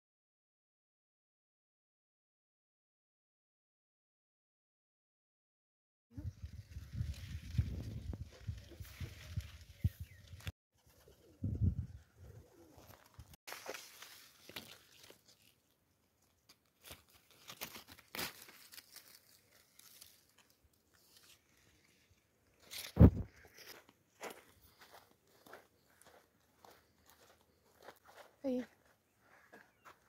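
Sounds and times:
leaves rustling: 6.2s - 10.5s, 12.8s - 23.8s.

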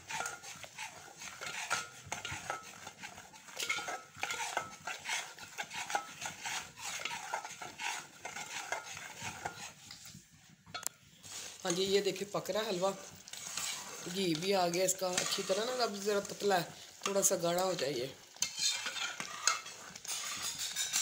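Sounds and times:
metal spatula scraping metal pot: 0.0s - 21.0s.

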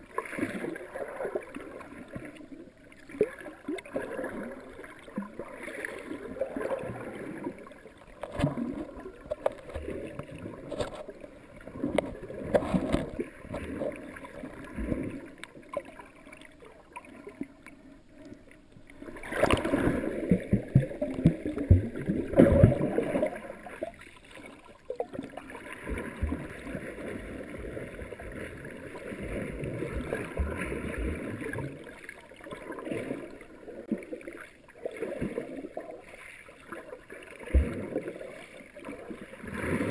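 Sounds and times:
water sloshing: 0.0s - 39.9s.

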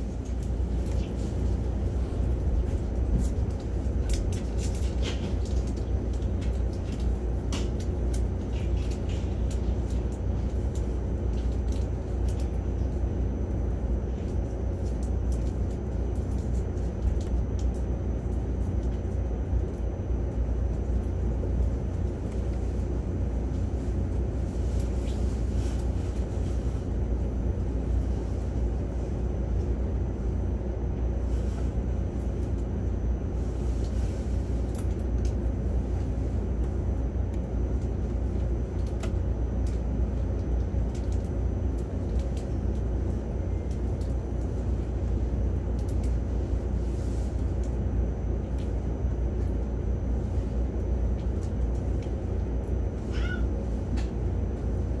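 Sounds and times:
train rumbling: 0.0s - 12.4s.

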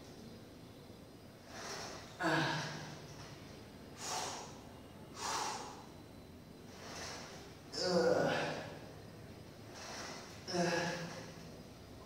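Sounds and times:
man grunting: 2.2s - 2.8s, 7.7s - 8.7s, 10.5s - 11.1s
man breathing forcefully: 4.0s - 4.6s, 5.2s - 5.9s.

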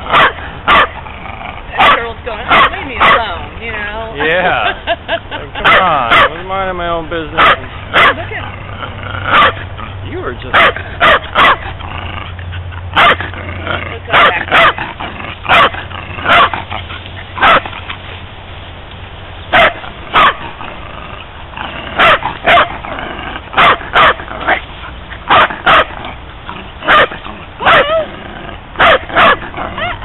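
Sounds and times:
dog barking: 0.1s - 1.0s, 1.7s - 3.4s, 5.6s - 6.4s, 7.4s - 8.4s, 9.3s - 9.6s, 10.5s - 11.6s, 13.0s - 13.3s, 14.1s - 14.8s, 15.5s - 16.6s, 17.4s - 17.7s, 19.5s - 20.5s, 22.0s - 22.8s, 23.6s - 24.6s, 25.3s - 26.0s, 26.8s - 28.0s, 28.8s - 30.0s.

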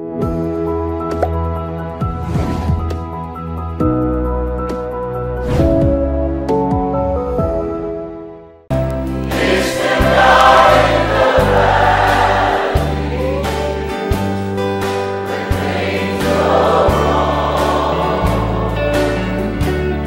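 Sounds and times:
bass line: 8.7s - 14.8s, 15.5s - 20.0s
choir singing: 9.2s - 14.0s, 15.0s - 20.0s.

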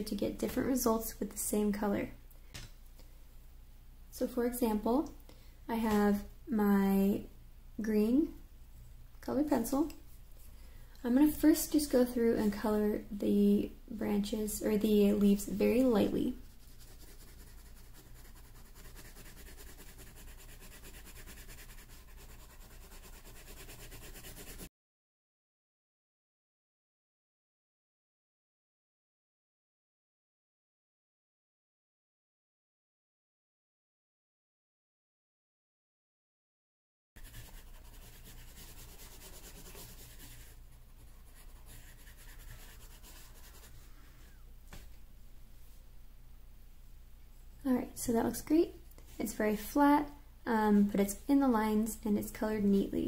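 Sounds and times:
low steady hum: 0.0s - 24.7s, 37.2s - 53.0s
pencil scratching on paper: 16.4s - 24.7s, 37.2s - 43.9s.

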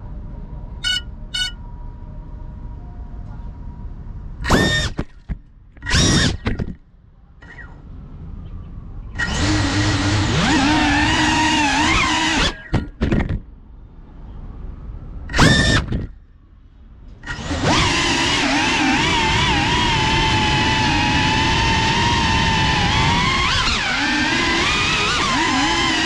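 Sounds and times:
drone propellers whining: 4.4s - 6.8s, 9.1s - 13.3s, 15.2s - 16.2s, 17.1s - 26.0s.

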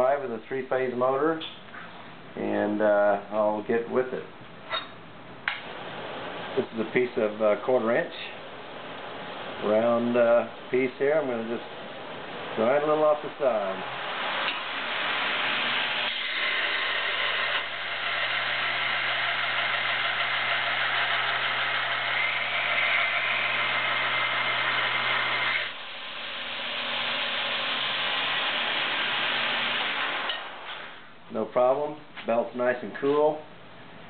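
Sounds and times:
belt grinder running: 12.6s - 30.8s
steel bar grinding against belt: 14.2s - 25.8s.

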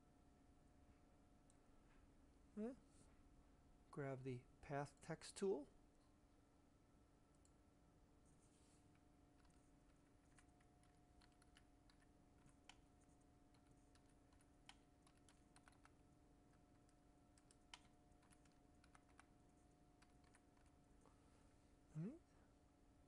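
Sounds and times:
faint steady hum: 0.0s - 23.0s
keyboard typing: 9.3s - 20.9s.

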